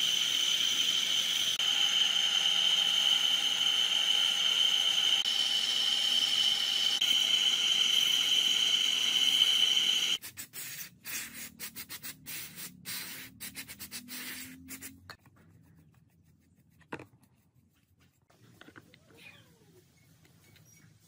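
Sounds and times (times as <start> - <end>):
aerosol spray can hissing: 6.4 - 15.0
faint brushing: 13.5 - 21.0.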